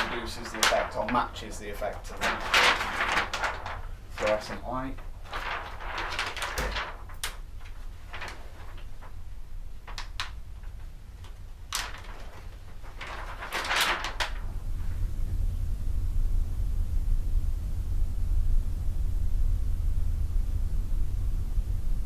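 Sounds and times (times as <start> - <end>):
fabric rustling: 0.0 - 15.0
low steady hum: 0.0 - 22.0.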